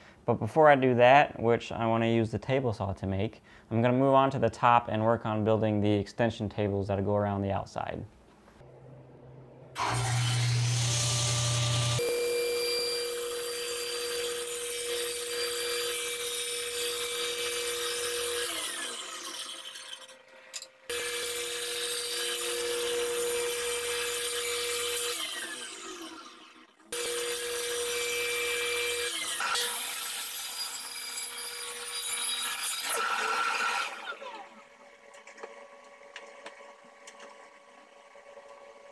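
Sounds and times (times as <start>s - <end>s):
miter saw cutting board: 8.6s - 34.7s
power saw cutting wood: 8.6s - 35.6s.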